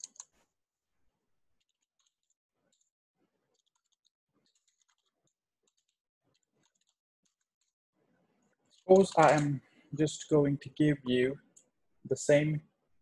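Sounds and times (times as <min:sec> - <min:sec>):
faint keyboard typing: 0:00.0 - 0:00.5, 0:01.6 - 0:02.9, 0:03.5 - 0:07.8, 0:08.6 - 0:10.4.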